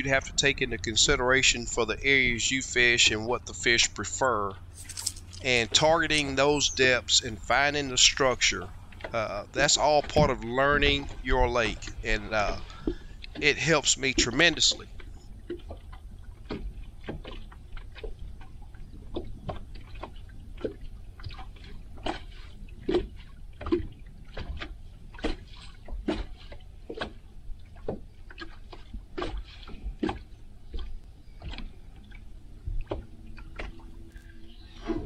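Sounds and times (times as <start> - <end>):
steady low rumble: 0.0 - 15.2
waves slapping boat hull: 0.0 - 34.1.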